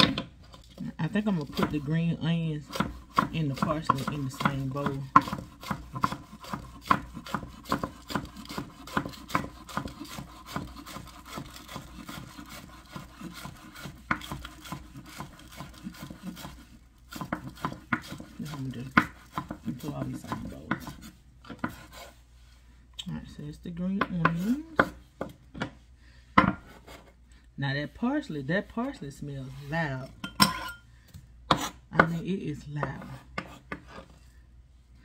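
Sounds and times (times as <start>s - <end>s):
knife chopping on cutting board: 1.4s - 22.1s, 24.0s - 27.1s, 31.5s - 32.2s, 32.8s - 34.1s.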